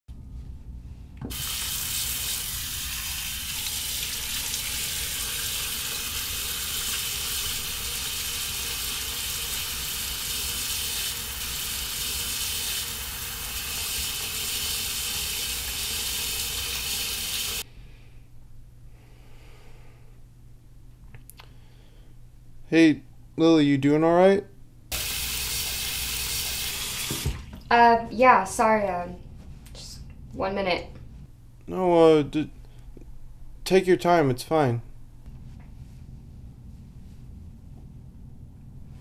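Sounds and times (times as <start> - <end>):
water running from sink tap: 1.3 - 17.6, 24.9 - 27.7.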